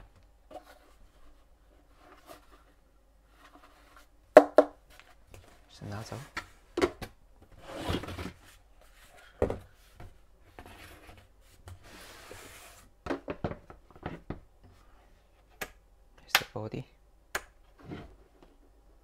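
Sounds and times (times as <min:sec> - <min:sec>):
cardboard rustling and scraping: 0:00.5 - 0:04.1, 0:07.5 - 0:12.9.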